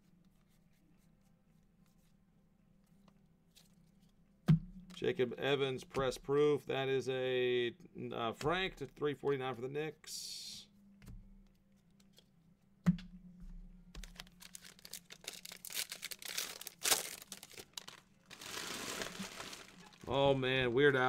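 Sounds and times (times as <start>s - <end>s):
wrappers crinkling and tearing: 14.0s - 20.2s.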